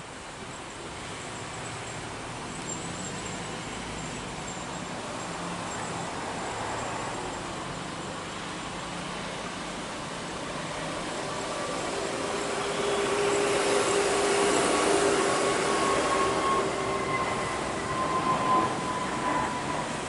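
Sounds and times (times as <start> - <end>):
faint jet whine: 0.3 - 20.0
jet engines roaring: 6.1 - 20.0.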